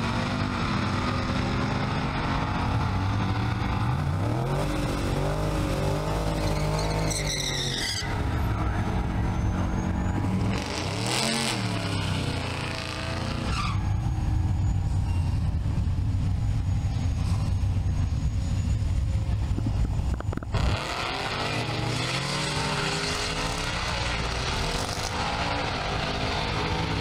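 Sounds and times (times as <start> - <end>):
race car engines revving past: 0.0 - 14.6, 20.4 - 27.0
drag car engines rumbling: 0.0 - 27.0.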